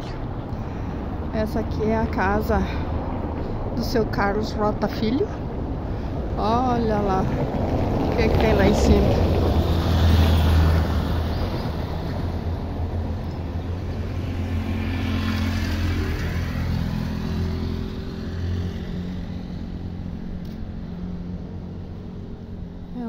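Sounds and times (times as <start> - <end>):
passing traffic: 0.0 - 23.0
vehicle engine passing: 5.4 - 23.0.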